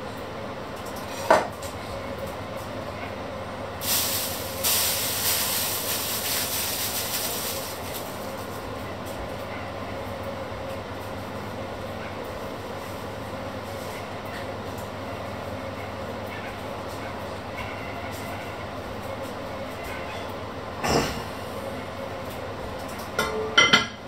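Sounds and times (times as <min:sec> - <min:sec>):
hiss: 0:03.8 - 0:07.6.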